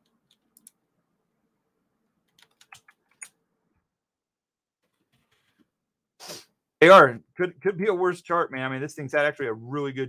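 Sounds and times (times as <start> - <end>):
computer keyboard typing: 2.2 - 3.3.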